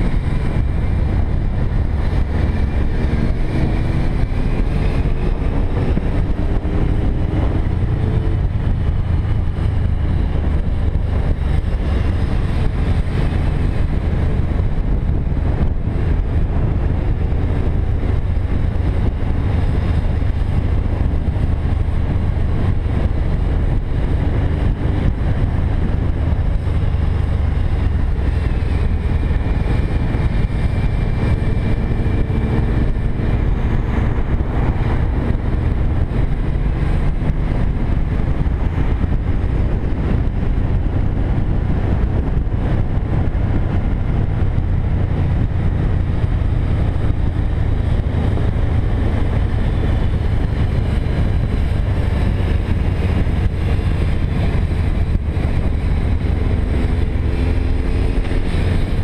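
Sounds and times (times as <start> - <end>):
motorcycle engine running: 0.0 - 59.0
wind rush on microphone: 0.0 - 59.0.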